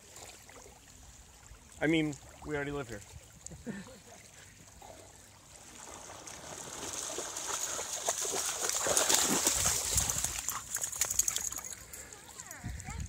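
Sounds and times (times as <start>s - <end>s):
dog splashing through water: 5.6s - 12.4s.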